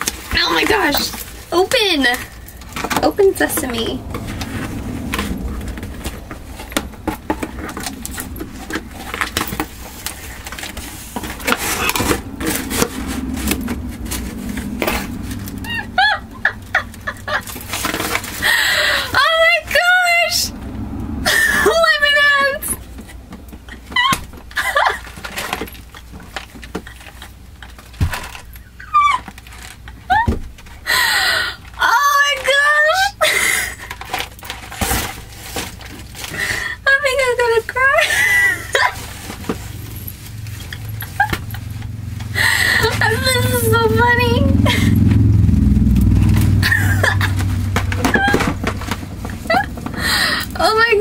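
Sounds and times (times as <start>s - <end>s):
steady low hum: 0.0s - 31.8s, 33.2s - 51.0s
woman laughing: 15.7s - 17.7s, 23.7s - 25.2s, 30.0s - 31.3s, 37.8s - 39.0s, 40.7s - 41.7s, 42.3s - 45.0s, 46.6s - 48.4s, 49.3s - 50.7s.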